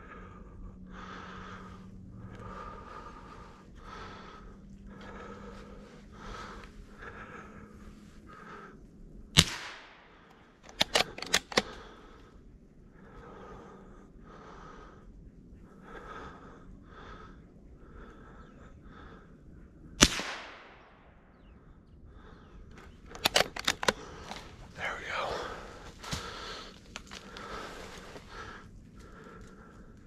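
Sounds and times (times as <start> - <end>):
rifle shots with echo: 9.4 - 11.7, 20.0 - 21.0
sharp clicks: 9.4 - 11.9, 22.7 - 24.6.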